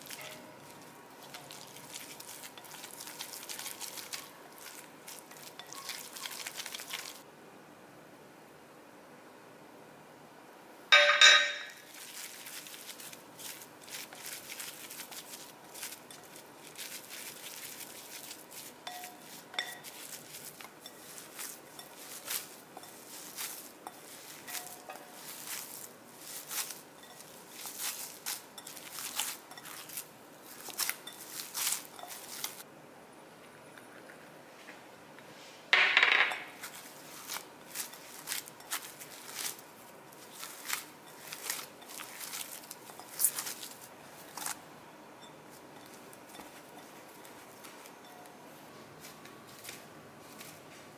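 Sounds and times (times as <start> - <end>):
clink with ringing tail: 10.9 - 11.8
spatula scraping glass bowl: 18.6 - 30.0.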